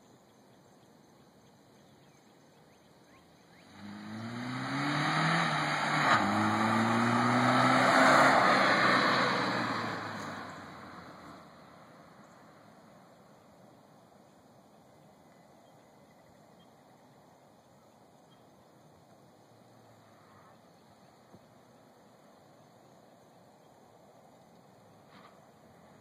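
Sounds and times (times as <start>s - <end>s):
car engine accelerating: 3.5s - 11.8s
tyre noise on road: 3.6s - 13.3s, 24.7s - 26.0s.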